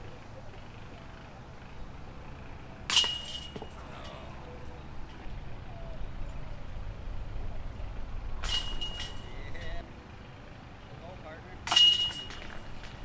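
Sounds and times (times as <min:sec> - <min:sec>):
disc striking metal chains: 0:02.9 - 0:05.2, 0:08.4 - 0:09.8, 0:11.6 - 0:13.0.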